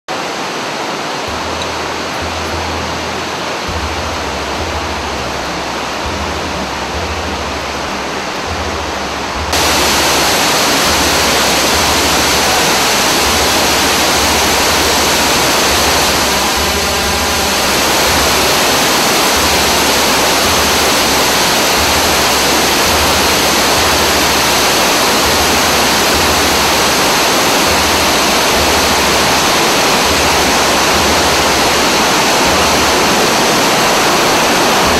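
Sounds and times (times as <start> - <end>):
waterfall rushing: 0.1 - 34.9.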